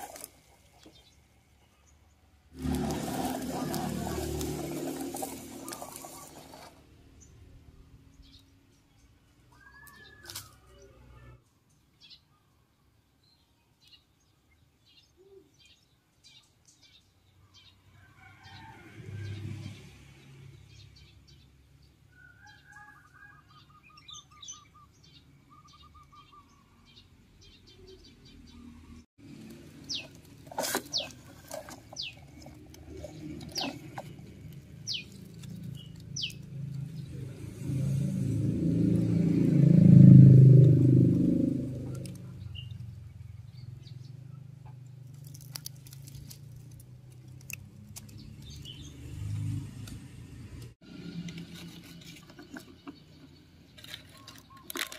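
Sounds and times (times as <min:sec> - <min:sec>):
small birds chirping: 0:03.4 - 0:17.9, 0:20.5 - 0:37.8, 0:41.6 - 0:49.6, 0:51.0 - 0:54.9
bird trill: 0:09.5 - 0:10.7, 0:22.2 - 0:27.0, 0:29.9 - 0:30.2, 0:34.9 - 0:36.4.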